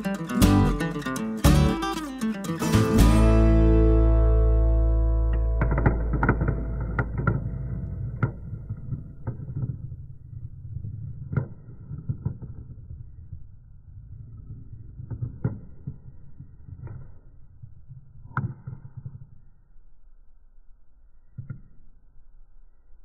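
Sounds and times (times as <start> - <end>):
marbles rolling on plastic track: 9.3 - 19.3.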